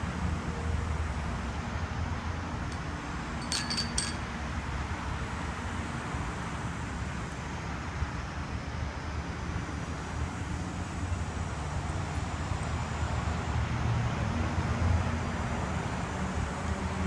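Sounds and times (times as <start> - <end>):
light metallic clinks: 2.7 - 4.3.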